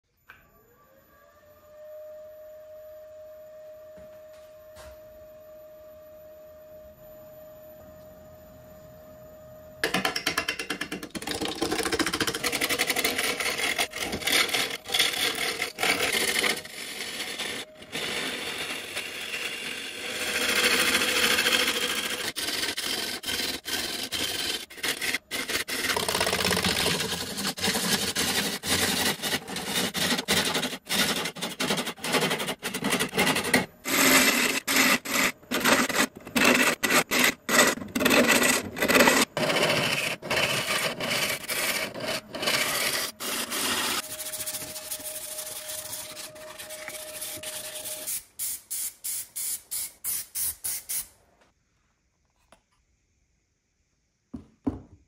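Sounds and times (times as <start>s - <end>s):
lathe tool cutting wood: 12.4s - 48.1s.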